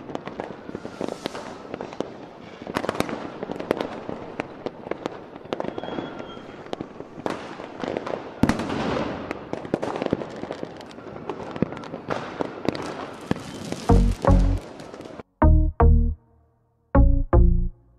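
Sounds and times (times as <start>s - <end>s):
fireworks bangs: 0.0s - 15.2s
fireworks crackling: 0.0s - 15.2s.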